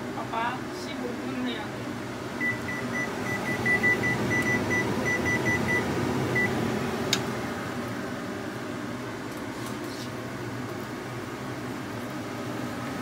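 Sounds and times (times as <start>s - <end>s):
control panel beeps: 2.4s - 6.5s.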